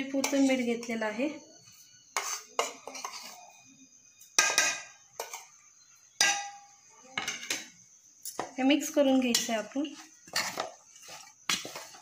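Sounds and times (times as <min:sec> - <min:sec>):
spoon scraping china plate: 0:02.1 - 0:03.6, 0:09.3 - 0:12.0
spoon clinking on steel bowl: 0:04.4 - 0:05.5, 0:06.2 - 0:06.6.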